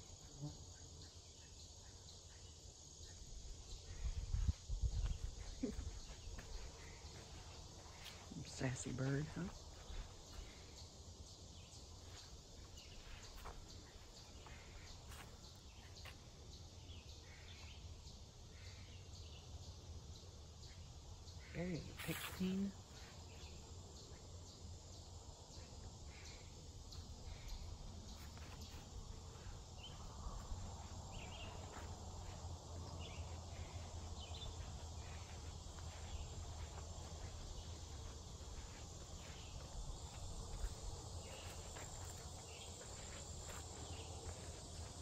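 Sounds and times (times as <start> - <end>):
insects chirring: 0.0 - 45.0
footsteps on dirt trail: 3.9 - 16.2, 26.9 - 45.0.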